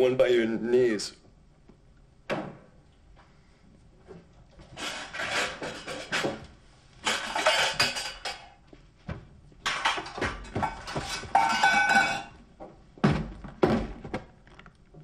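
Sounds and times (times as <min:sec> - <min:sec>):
objects clattering in cupboard: 0:04.6 - 0:08.6, 0:09.6 - 0:12.4.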